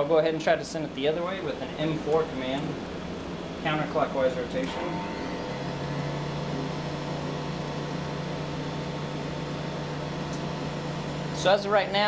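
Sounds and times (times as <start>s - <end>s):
spindle motor humming: 1.7s - 12.0s.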